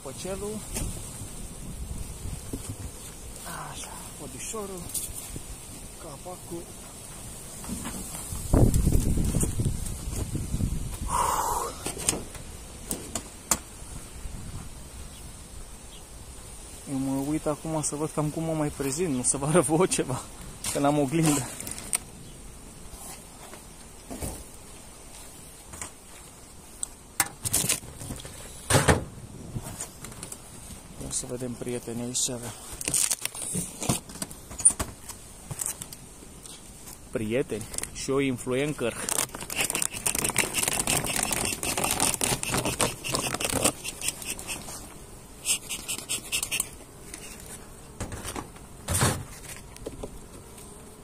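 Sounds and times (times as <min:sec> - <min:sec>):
steady background hiss: 0:00.0 - 0:51.0
bees buzzing faintly: 0:00.1 - 0:51.0
beehive crinkling and scraping: 0:00.2 - 0:10.4, 0:16.4 - 0:28.8, 0:29.5 - 0:51.0
thump: 0:28.7 - 0:29.1, 0:48.0 - 0:49.3.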